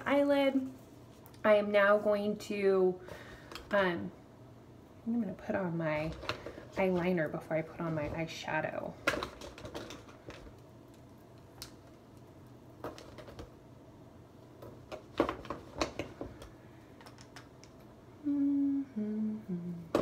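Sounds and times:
woman humming: 18.2s - 20.0s.

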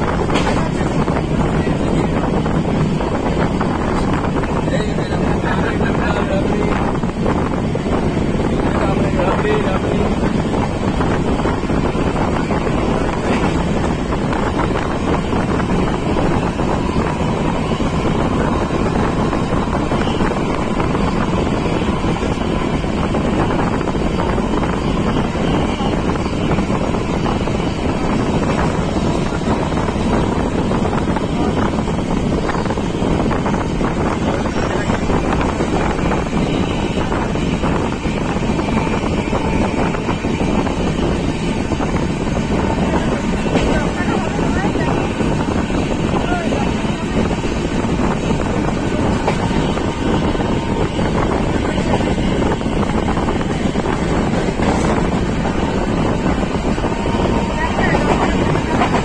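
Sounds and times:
train wheels rumbling on track: 0.0s - 59.0s
wind buffeting microphone: 0.0s - 59.0s.

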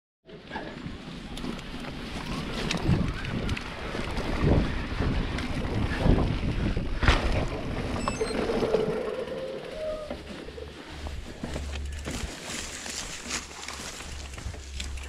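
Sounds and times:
bike rattling over bumps: 0.4s - 15.0s
bike tyres rolling over dirt: 0.4s - 15.0s
wind on microphone: 1.4s - 9.9s.

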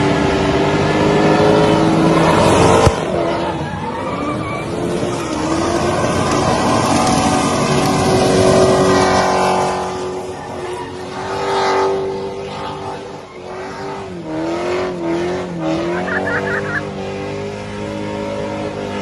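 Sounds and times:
car engine revving high: 0.0s - 19.0s
tyres screeching: 2.1s - 8.0s.

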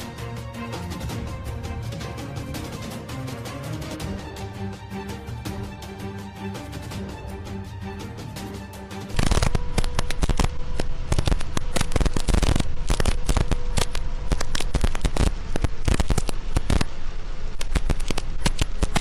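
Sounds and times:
faint steady whine: 9.1s - 19.0s
heavy rain on vehicle: 9.1s - 19.0s.

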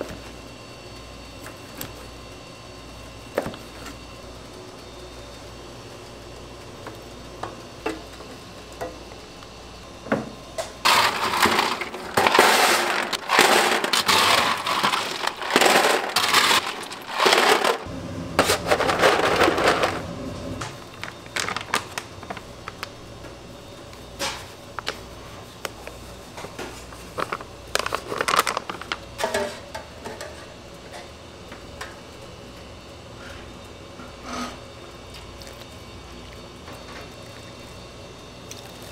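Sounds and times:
ice cubes clattering against steel: 10.9s - 17.9s, 18.5s - 20.0s.

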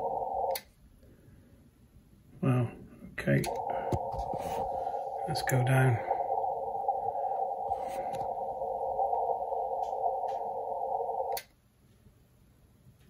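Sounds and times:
radio receiver hiss: 0.0s - 0.7s, 3.2s - 11.5s
faint radio tuning clicks: 3.2s - 11.6s.

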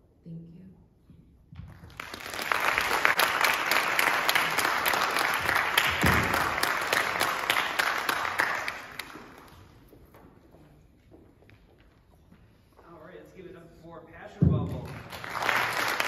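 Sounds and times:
audience applauding: 1.7s - 9.9s, 14.8s - 16.0s.

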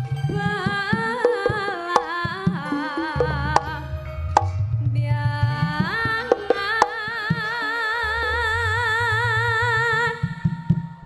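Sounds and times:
woman singing through a pa system: 0.0s - 4.2s, 5.0s - 11.0s
sharp drum strokes: 0.0s - 5.0s.

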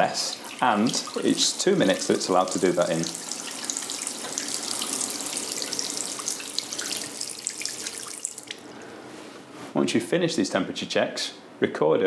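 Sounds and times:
tap water running into basin: 0.0s - 8.7s.

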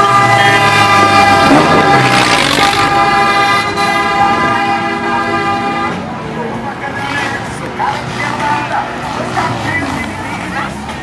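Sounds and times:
vehicle horn blast: 0.0s - 6.1s.

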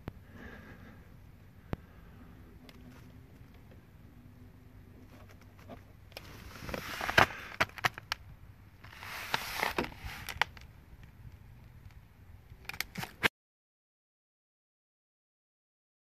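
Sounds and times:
rustling and crunching in snow: 6.2s - 7.6s, 8.8s - 10.4s.

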